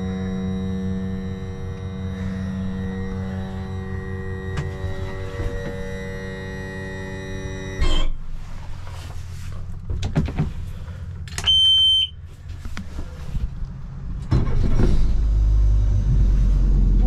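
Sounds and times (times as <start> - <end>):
low engine rumble: 0.0 - 17.0
high electronic beep: 11.5 - 12.2.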